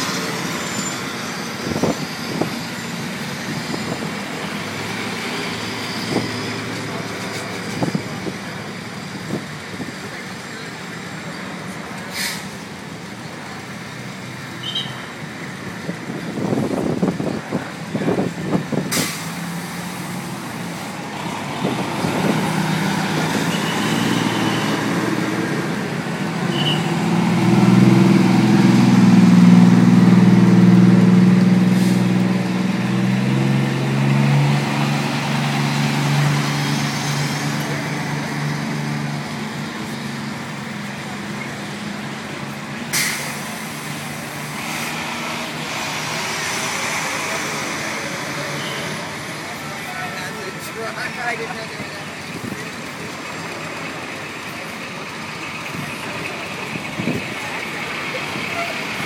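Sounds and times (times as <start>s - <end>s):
fire trucks driving past: 0.0s - 59.0s
air-brake hisses: 12.1s - 12.6s, 18.9s - 19.8s, 42.9s - 43.9s.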